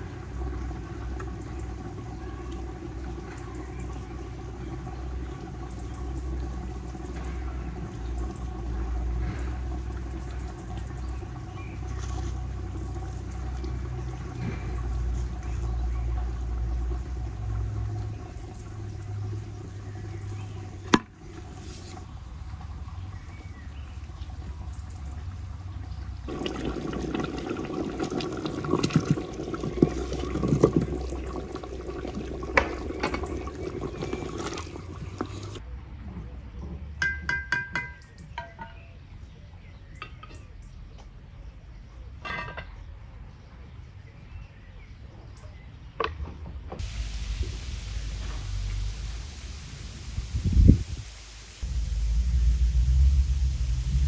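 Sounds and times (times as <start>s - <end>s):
pot boiling hard: 0.0s - 35.6s, 46.8s - 54.0s.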